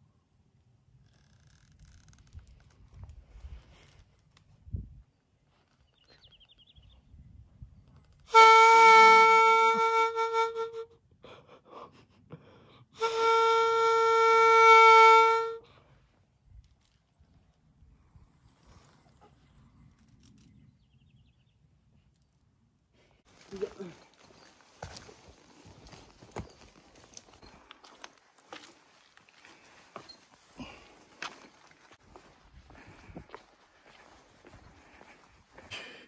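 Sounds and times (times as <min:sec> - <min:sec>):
conch-shell trumpet notes: 0:08.3 - 0:11.0, 0:13.0 - 0:15.7.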